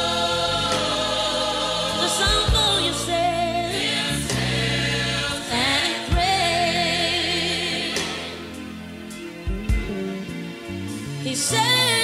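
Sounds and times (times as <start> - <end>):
choir singing: 0.0 - 8.7
instrumental accompaniment: 0.0 - 11.4
low bass line: 0.0 - 11.4.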